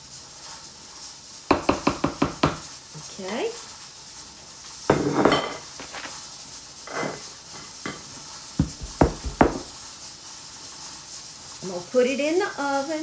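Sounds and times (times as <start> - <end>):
bowl and spatula clattering: 4.9 - 6.1
low knocks on wooden counter: 8.6 - 9.7.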